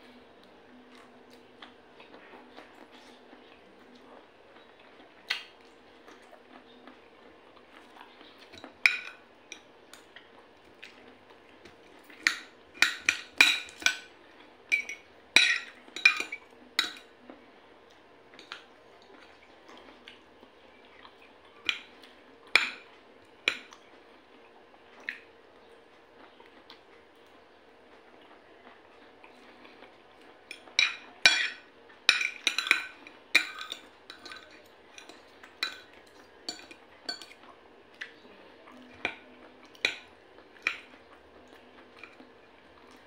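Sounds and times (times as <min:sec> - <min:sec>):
cutlery clinking on a plate: 0:08.5 - 0:09.2, 0:12.1 - 0:14.1, 0:14.7 - 0:17.1, 0:30.5 - 0:35.9, 0:36.5 - 0:37.4.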